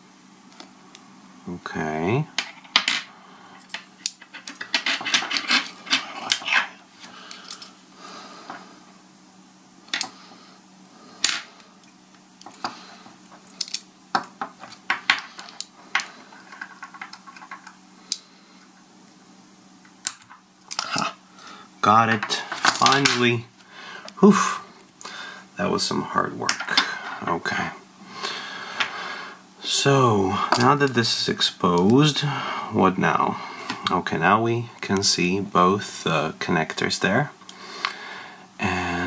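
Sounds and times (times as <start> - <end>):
metal tools clicking and scraping: 3.6 - 6.7.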